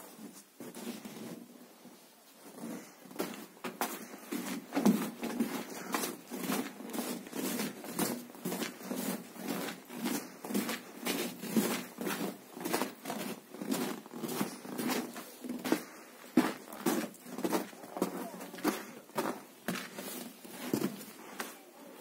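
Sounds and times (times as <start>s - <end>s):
footsteps crunching through snow: 0.0s - 21.6s.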